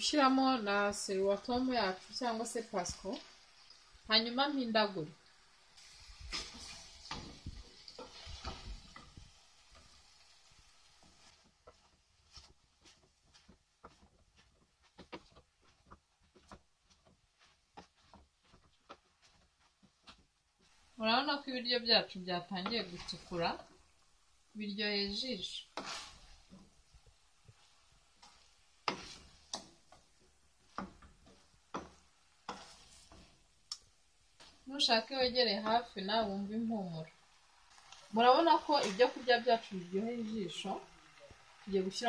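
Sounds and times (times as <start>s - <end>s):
wooden spatula scraping saucepan: 5.8s - 23.8s, 25.0s - 33.6s.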